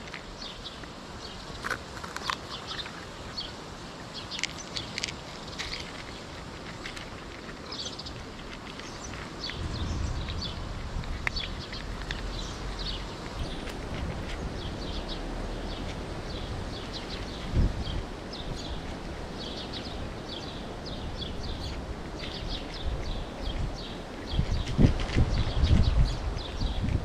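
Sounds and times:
birds chirping: 0:00.0 - 0:27.0
cat chewing dry food: 0:01.6 - 0:03.5, 0:04.2 - 0:17.5.

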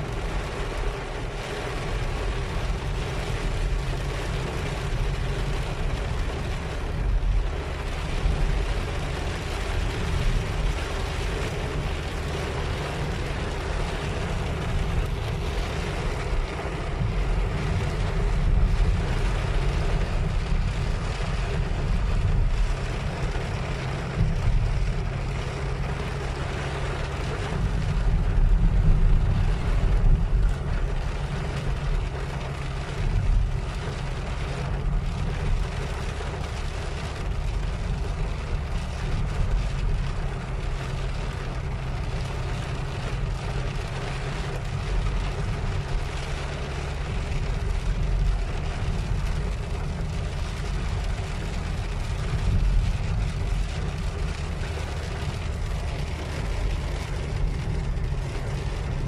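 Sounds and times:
car engine and road rumble: 0:00.0 - 0:59.0
heavy rain on car roof: 0:00.0 - 0:59.0.

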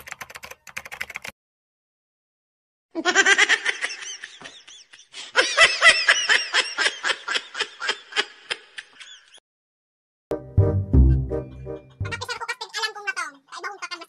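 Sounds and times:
high-pitched laughter: 0:03.0 - 0:09.4.

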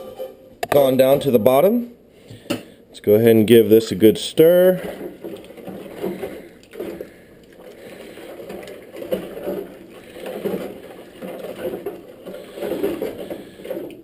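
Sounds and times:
liquid sloshing in metal pot: 0:03.6 - 0:14.0.

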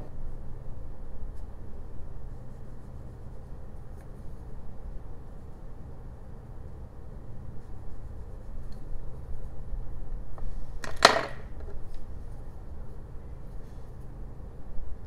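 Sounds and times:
low steady hum: 0:00.0 - 0:15.0
pencil put down on wooden bench: 0:10.8 - 0:11.7.

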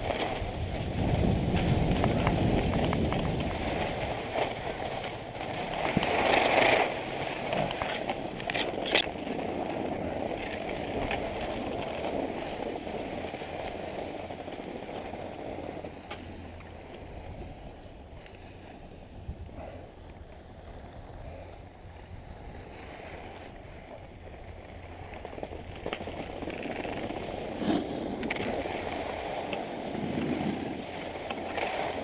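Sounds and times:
wind on microphone: 0:00.0 - 0:09.1, 0:15.5 - 0:32.0
skis scraping over snow: 0:00.0 - 0:32.0.

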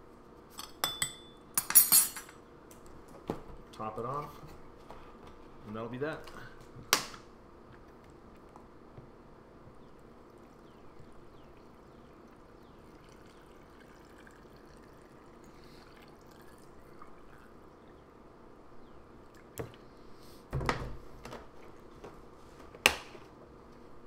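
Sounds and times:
liquid trickling into glass jar: 0:10.3 - 0:17.8.

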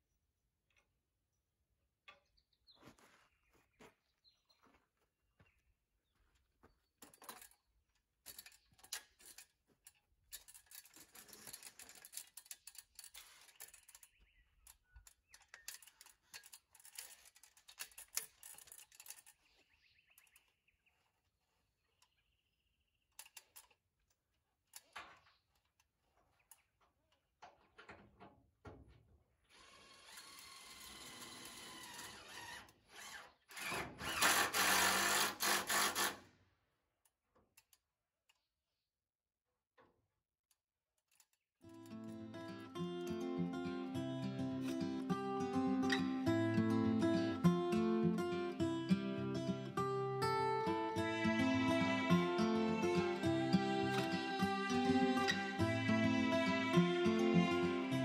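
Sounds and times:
power drill running: 0:29.5 - 0:36.2.

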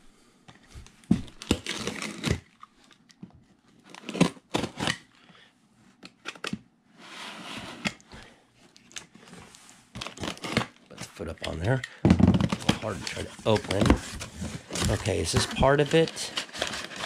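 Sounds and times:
cardboard knocks and scrapes: 0:12.1 - 0:17.0
cardboard rustle: 0:12.4 - 0:17.0.

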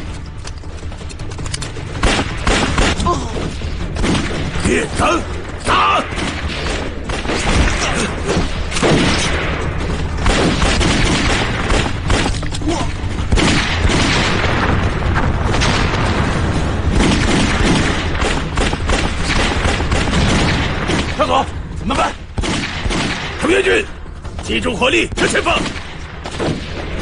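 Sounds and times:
gunshots: 0:00.0 - 0:27.0.

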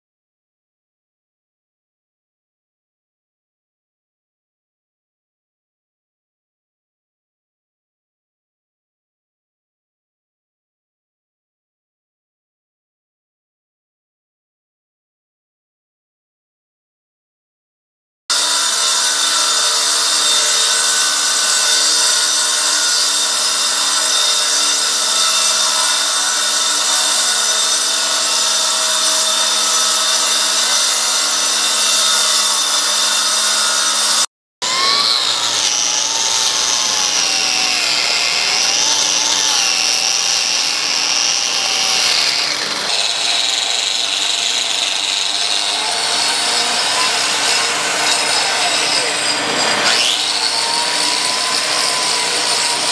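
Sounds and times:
angle grinder cutting concrete: 0:18.3 - 0:52.9.

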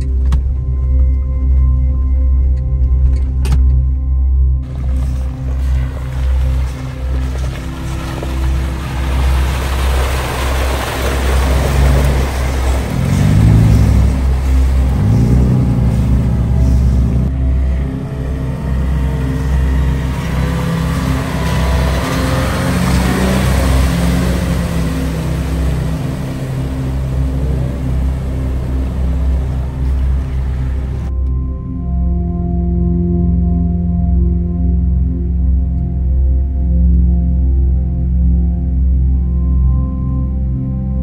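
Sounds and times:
truck engine rumbling and revving: 0:00.0 - 0:32.2
water splashing: 0:04.6 - 0:31.1.

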